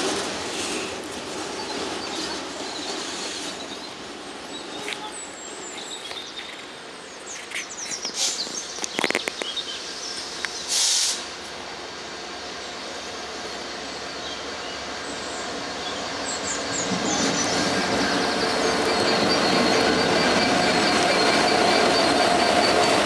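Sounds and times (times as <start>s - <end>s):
freight train rail noise: 0.0s - 23.0s
sharp clicks: 7.4s - 9.6s
burst of hiss: 8.1s - 8.5s, 10.2s - 11.4s.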